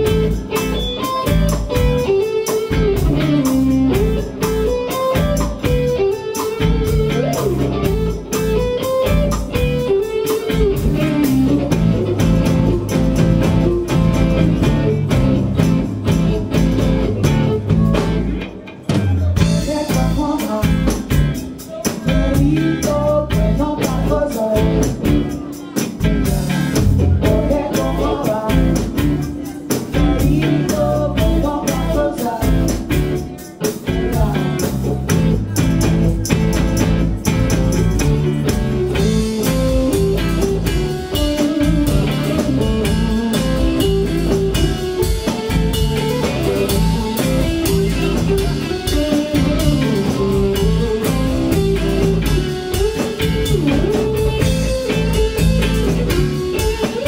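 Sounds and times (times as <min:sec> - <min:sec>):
drum kit: 0:00.0 - 0:57.0
electric guitars: 0:00.0 - 0:57.0.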